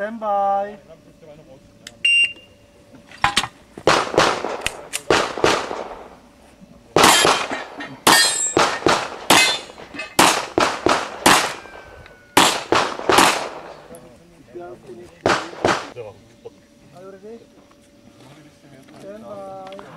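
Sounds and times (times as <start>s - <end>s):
rapid pistol fire: 3.8s - 6.2s, 7.0s - 11.8s, 12.4s - 13.9s, 15.2s - 15.9s
steel targets clanging: 7.0s - 14.0s.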